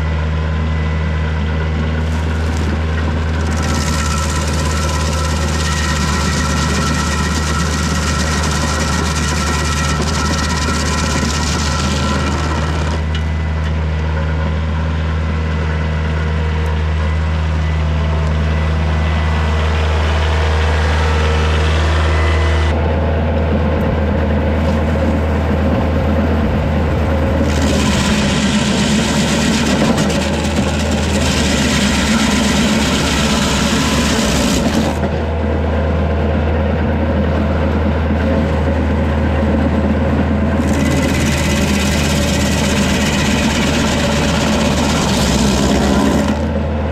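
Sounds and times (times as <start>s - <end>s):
tractor engine drone: 0.0s - 46.9s
stump grinder cutting wood: 1.8s - 13.4s, 24.5s - 35.4s, 38.1s - 39.5s, 40.3s - 46.8s.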